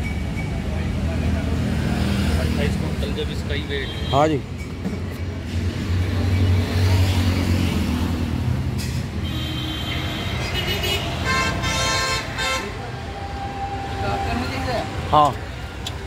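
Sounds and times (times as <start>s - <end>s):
horn toots: 9.2s - 15.0s.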